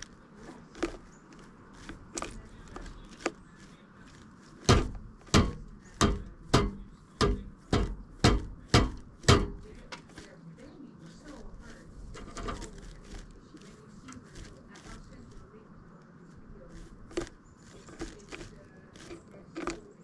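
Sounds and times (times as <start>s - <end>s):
woodpecker knocking on wood: 0.0s - 10.4s, 16.7s - 20.0s.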